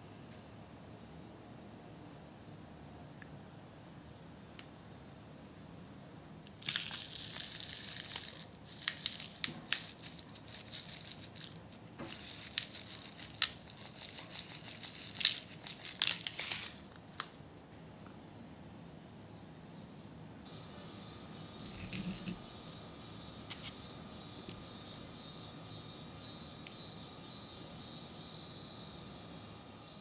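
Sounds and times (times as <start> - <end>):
candy packet crinkling and rustling: 6.5 - 17.4, 21.6 - 22.4.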